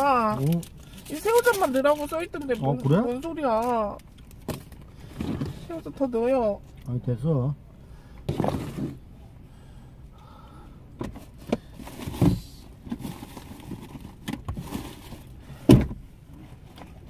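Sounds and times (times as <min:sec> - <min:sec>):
takeout bags rustling: 0:11.2 - 0:15.4.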